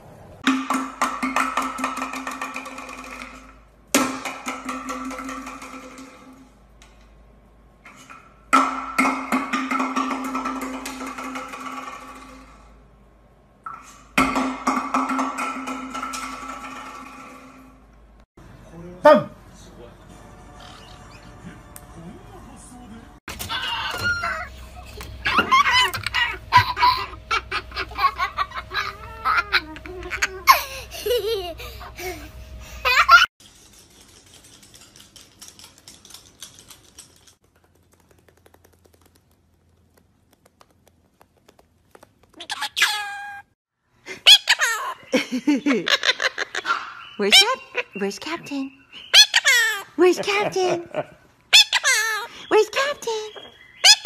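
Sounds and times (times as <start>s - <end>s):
cockatoo laugh-like calls: 23.4s - 24.5s, 44.1s - 48.0s.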